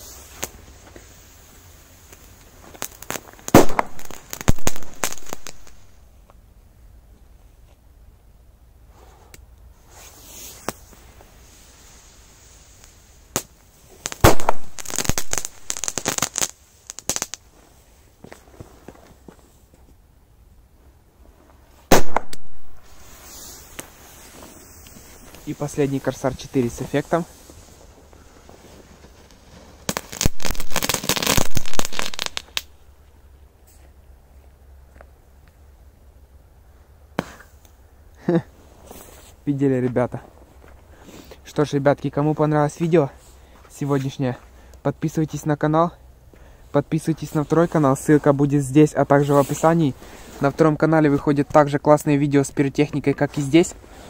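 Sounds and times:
rapid crackling pops: 0:02.1 - 0:05.9, 0:12.8 - 0:17.5, 0:21.9 - 0:27.0, 0:28.2 - 0:32.8
firecracker cracks: 0:02.1 - 0:06.0, 0:12.8 - 0:17.5, 0:21.9 - 0:25.6, 0:29.0 - 0:32.8
firecracker bang: 0:03.5 - 0:05.8, 0:14.1 - 0:16.4, 0:21.9 - 0:23.1
rapid cracks and pops: 0:14.1 - 0:17.4.

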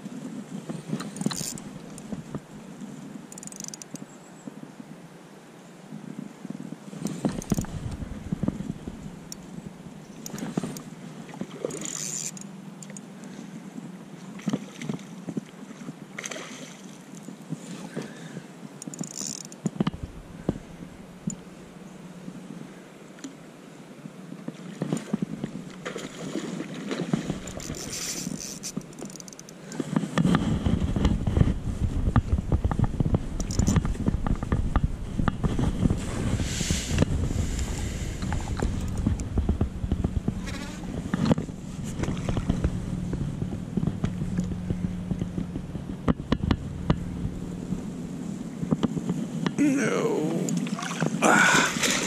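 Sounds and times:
spinning reel clicking: 0:03.4 - 0:04.0, 0:18.8 - 0:19.6
microphone crackling: 0:07.1 - 0:09.3, 0:30.2 - 0:52.0
heavy low rumble: 0:07.3 - 0:10.0, 0:19.8 - 0:22.6, 0:30.5 - 0:50.6.

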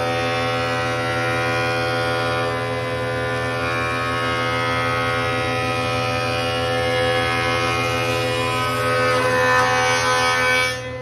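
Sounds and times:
thickness planer motor hum and whine: 0:00.0 - 0:11.0.

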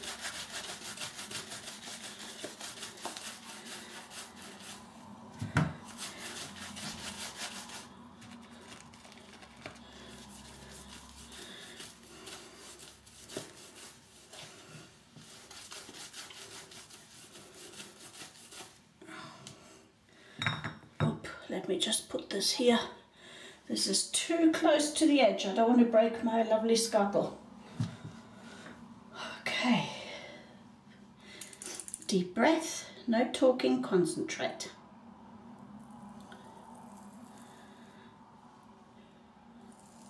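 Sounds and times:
shaving brush scrubbing lather: 0:00.0 - 0:05.1, 0:05.8 - 0:18.8, 0:39.6 - 0:40.0.

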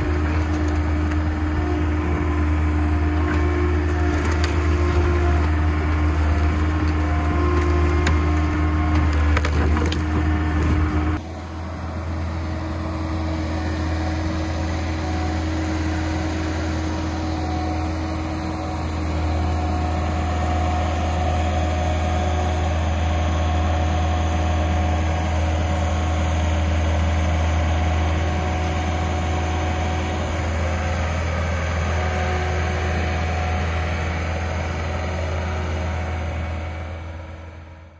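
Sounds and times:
branches cracking and snapping: 0:00.0 - 0:01.4, 0:03.2 - 0:11.2
skid steer engine under load: 0:00.0 - 0:37.9.

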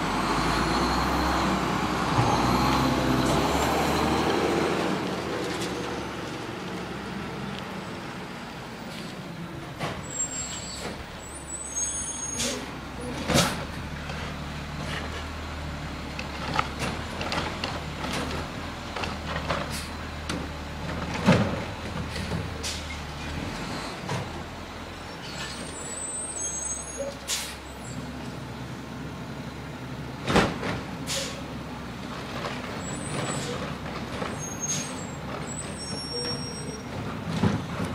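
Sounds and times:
garbage truck diesel engine: 0:00.0 - 0:37.9
short high squeals: 0:10.1 - 0:12.6, 0:25.2 - 0:27.2, 0:34.4 - 0:36.9.

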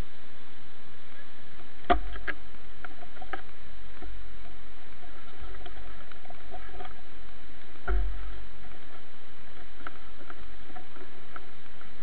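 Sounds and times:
water rushing: 0:00.0 - 0:12.0.

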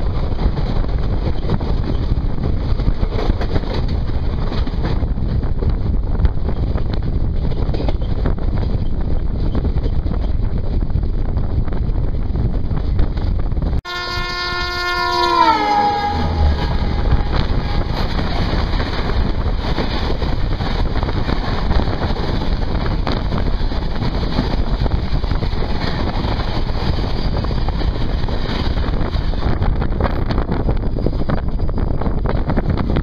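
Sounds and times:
wind noise from moving train: 0:00.0 - 0:33.0
locomotive horn: 0:13.8 - 0:18.6
train coaches rushing and clattering past: 0:15.0 - 0:33.0.

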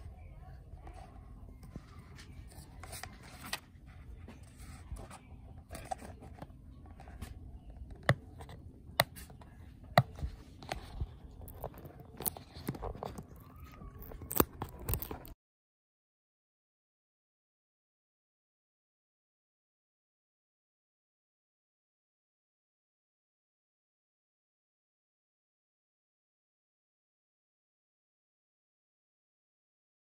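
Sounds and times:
box and bag rustling: 0:10.0 - 0:15.4.

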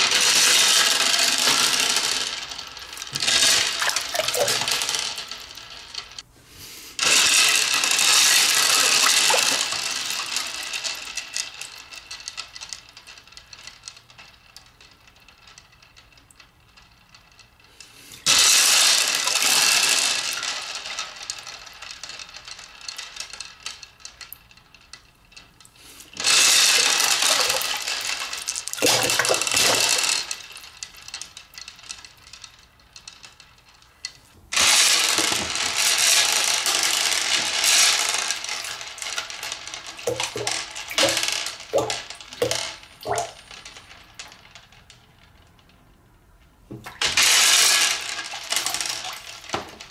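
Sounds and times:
balls rattling: 0:00.0 - 0:49.9
water splashing in aquarium: 0:40.1 - 0:43.3.

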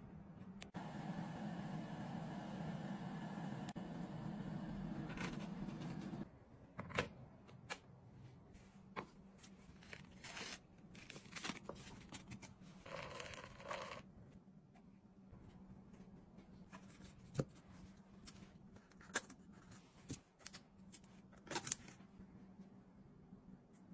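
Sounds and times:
paper rustling: 0:09.3 - 0:13.9.

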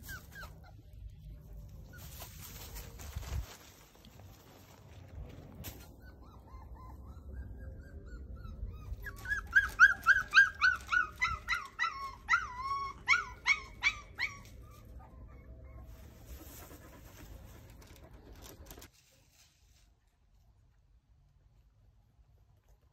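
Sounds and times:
puppy yelping: 0:00.0 - 0:01.1, 0:05.8 - 0:15.9
puppy whining: 0:00.0 - 0:02.3, 0:05.8 - 0:16.0.

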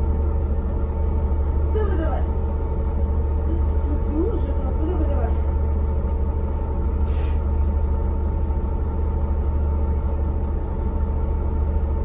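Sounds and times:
bus diesel engine droning: 0:00.0 - 0:12.0.

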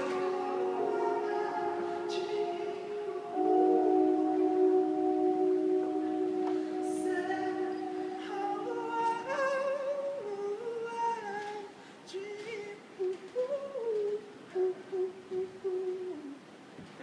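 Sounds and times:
person humming a melody: 0:00.0 - 0:11.5.

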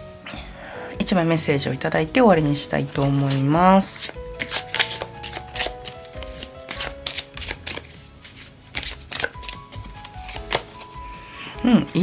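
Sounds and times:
background music: 0:00.0 - 0:12.0
cards shuffling: 0:03.0 - 0:11.0.

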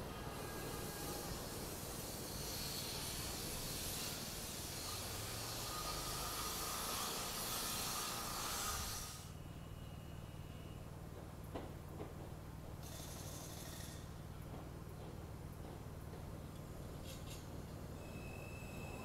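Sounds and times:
subway train wheels on rails: 0:00.0 - 0:09.3, 0:10.8 - 0:19.0.

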